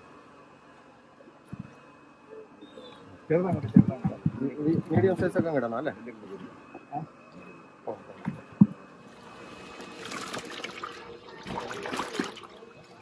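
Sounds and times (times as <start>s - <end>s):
fish splashing in water: 9.7s - 13.0s.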